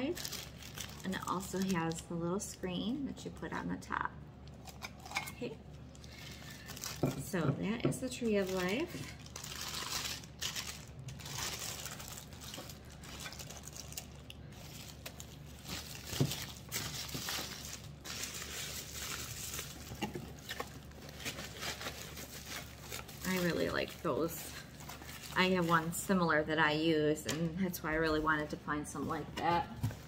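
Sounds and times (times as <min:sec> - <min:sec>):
plastic packaging crinkling: 0:00.0 - 0:02.2, 0:04.6 - 0:07.4, 0:08.0 - 0:26.3.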